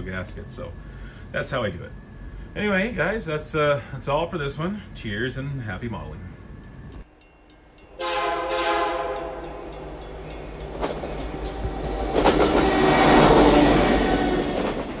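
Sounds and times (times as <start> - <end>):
train passing: 0.0 - 15.0
train horn: 8.0 - 9.9, 12.3 - 14.8.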